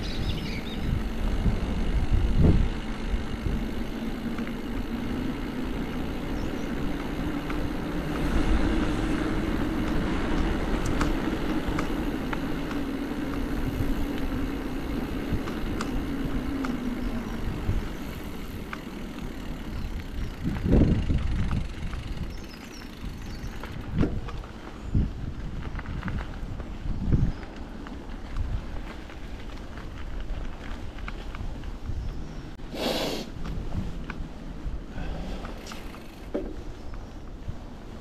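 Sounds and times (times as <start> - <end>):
vehicle motor humming: 0.0 - 25.0
wind rumble on microphone: 0.0 - 38.0.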